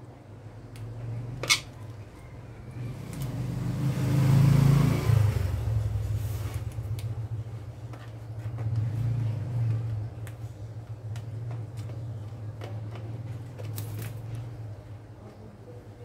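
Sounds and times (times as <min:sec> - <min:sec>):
vehicle passing by: 0:02.4 - 0:07.7, 0:08.4 - 0:10.5.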